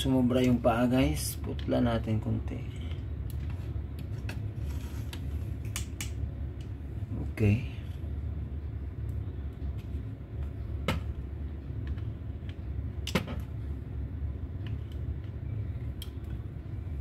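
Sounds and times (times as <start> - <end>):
steady low hum: 0.0 - 17.0.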